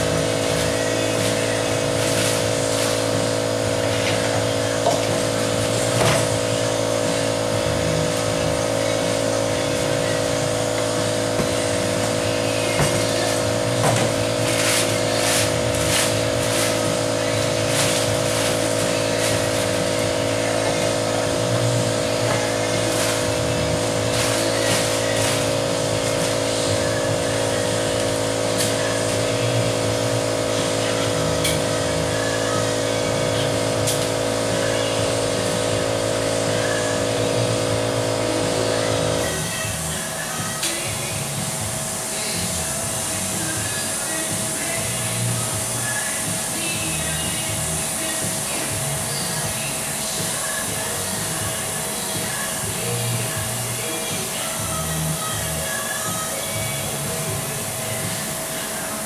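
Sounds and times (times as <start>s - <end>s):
steady mechanical hum: 0.0s - 59.0s
plastic wrap crinkling: 14.4s - 20.0s, 22.6s - 26.5s.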